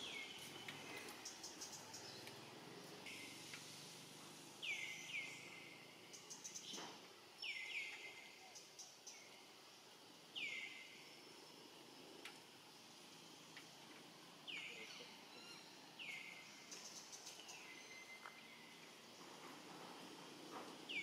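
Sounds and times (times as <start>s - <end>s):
faint steady hiss: 0.0s - 21.0s
soft ticks: 12.2s - 12.4s, 13.5s - 13.7s.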